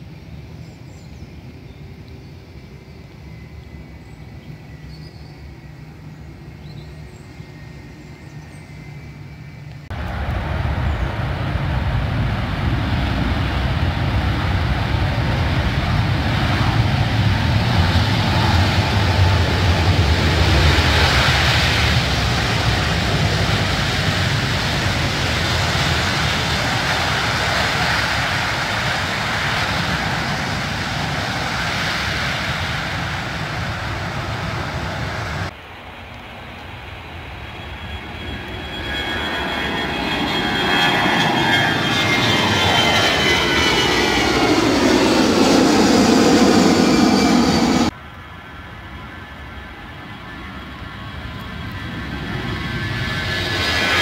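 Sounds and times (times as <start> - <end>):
jet engine rumble: 0.0 - 54.0.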